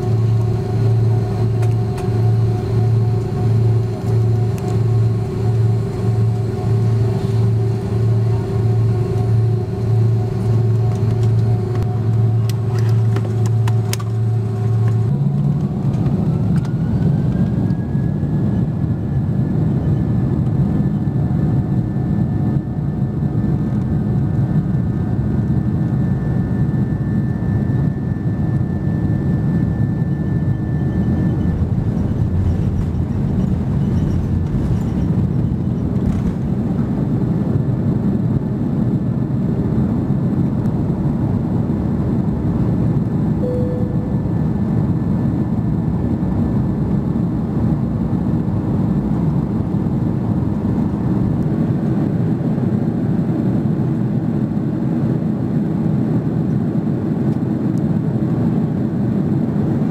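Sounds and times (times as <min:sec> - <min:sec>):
jet engine roar in cabin: 0:00.0 - 0:59.9
jet engine whine: 0:00.0 - 0:59.9.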